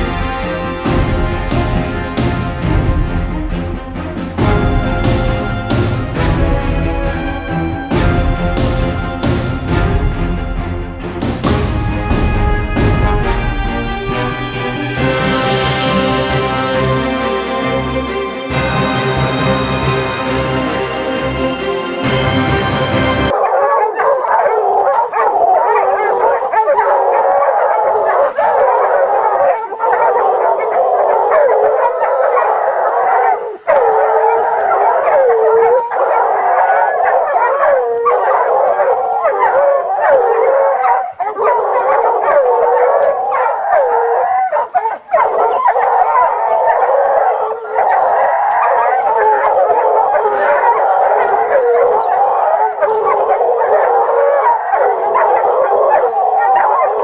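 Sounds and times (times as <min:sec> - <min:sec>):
hounds baying and howling: 0:11.4 - 0:57.0.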